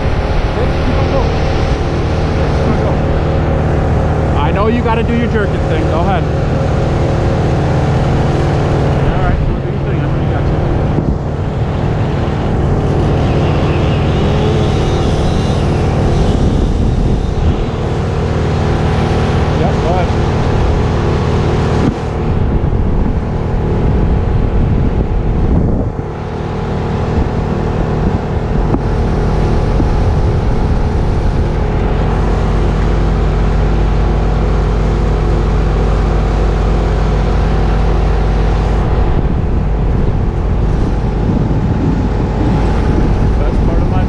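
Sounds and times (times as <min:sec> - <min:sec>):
crane engine droning: 0:00.0 - 0:44.0
wind buffeting microphone: 0:00.0 - 0:44.0.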